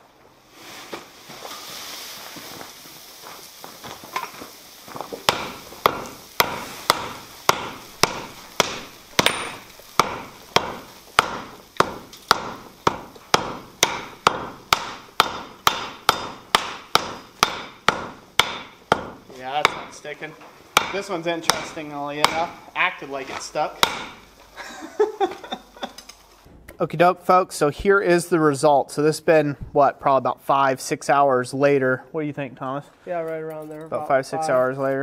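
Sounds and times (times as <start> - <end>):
hammer striking anvil: 5.3 - 20.0, 20.8 - 22.6, 23.8 - 24.2.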